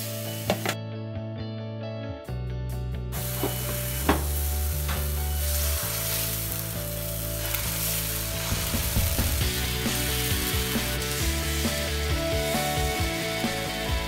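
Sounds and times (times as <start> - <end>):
soft background music: 0.0 - 14.0
batter sizzling on hot griddle: 3.2 - 14.0.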